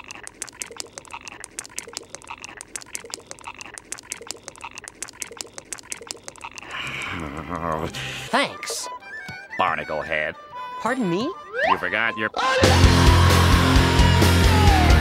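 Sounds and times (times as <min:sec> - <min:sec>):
chorus of croaking clicks: 0:00.0 - 0:07.8.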